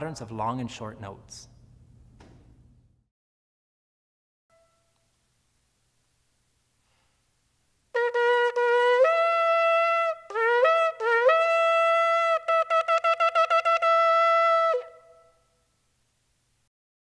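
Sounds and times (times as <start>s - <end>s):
shofar blasts: 4.5s - 5.0s, 7.9s - 15.6s.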